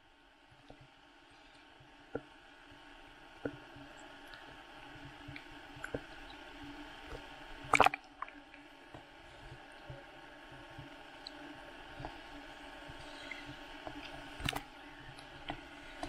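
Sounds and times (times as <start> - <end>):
water lapping against case: 3.4 - 16.0.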